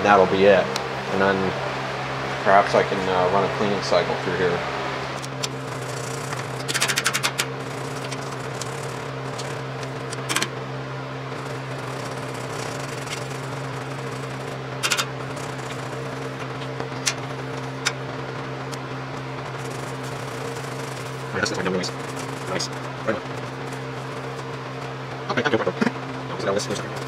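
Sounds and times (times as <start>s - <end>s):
steady low hum: 0.0s - 27.0s
toothbrush scrubbing sheet metal: 5.3s - 10.5s, 11.3s - 18.0s, 19.5s - 24.5s.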